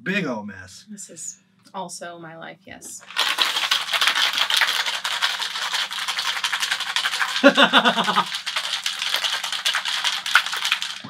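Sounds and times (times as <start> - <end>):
ice rattling in cocktail shaker: 3.0 - 11.0
burst of laughter: 7.4 - 8.3.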